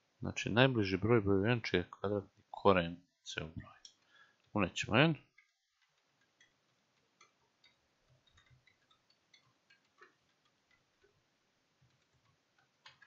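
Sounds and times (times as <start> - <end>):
keyboard typing clicks: 5.4 - 11.2, 11.8 - 13.0.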